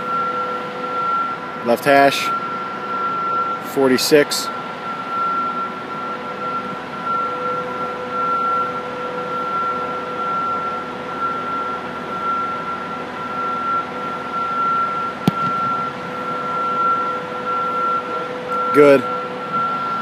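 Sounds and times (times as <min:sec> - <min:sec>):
ventilation hum: 0:00.0 - 0:20.0
foot kicking football: 0:15.2 - 0:15.8.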